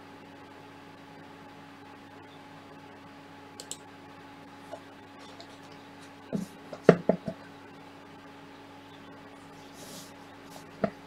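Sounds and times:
small clicks: 3.6s - 3.8s
hardware knocking on workbench: 6.4s - 7.4s.

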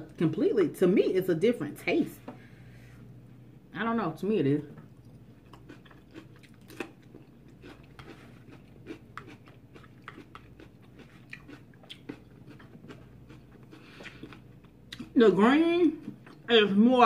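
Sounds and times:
crunchy chewing: 4.9s - 15.2s.

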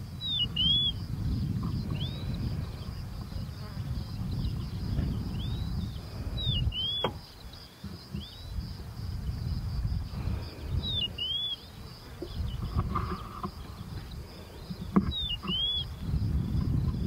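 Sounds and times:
high insect buzz: 0.0s - 17.0s
bird whistled calls: 0.2s - 1.0s, 6.4s - 7.2s, 15.2s - 15.9s.

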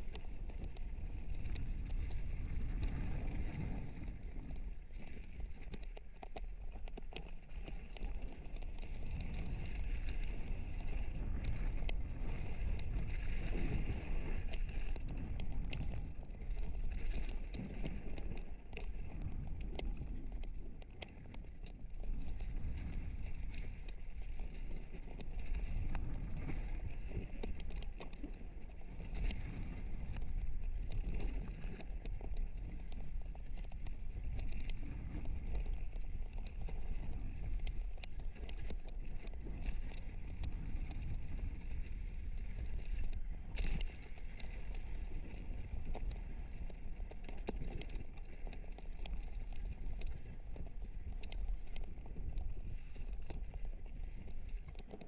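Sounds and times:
bike tyre rumble on gravel: 0.0s - 55.0s.

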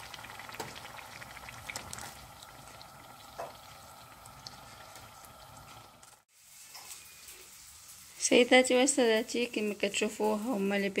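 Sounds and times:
small crackles: 0.0s - 8.3s
hot oil sizzling and bubbling: 0.0s - 11.0s.

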